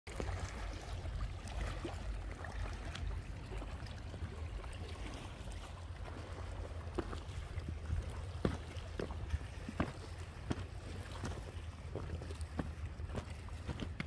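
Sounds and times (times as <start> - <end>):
wind rumbling on microphone: 0.1 - 14.0
footsteps on loose rocks: 9.8 - 14.0.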